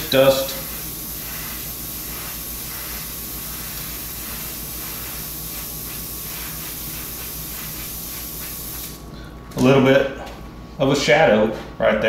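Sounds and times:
airbrush hiss: 0:00.0 - 0:09.1.

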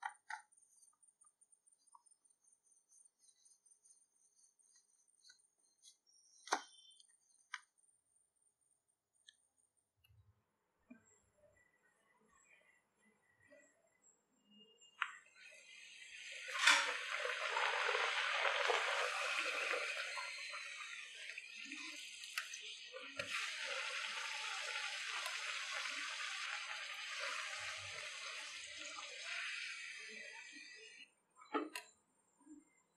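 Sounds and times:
bread deep-frying in hot oil: 0:15.2 - 0:31.0.

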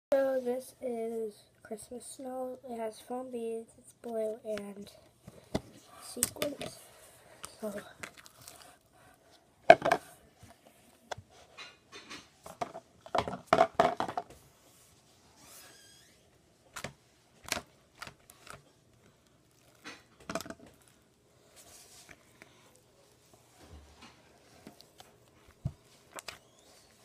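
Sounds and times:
slime crackling and squishing: 0:07.6 - 0:08.9, 0:17.4 - 0:23.6.

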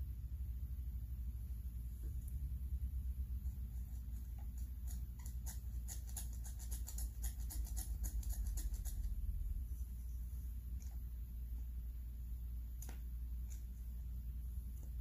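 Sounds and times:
steady low hum: 0:00.0 - 0:15.0
small sharp clicks and scratches: 0:03.7 - 0:09.2, 0:12.8 - 0:13.9.

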